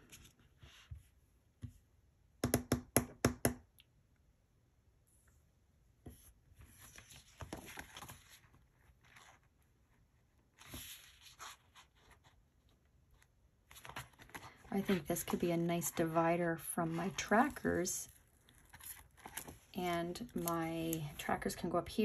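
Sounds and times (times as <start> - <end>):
paper rustling: 6.6 - 9.6, 10.4 - 12.4, 13.2 - 16.2, 16.8 - 21.6.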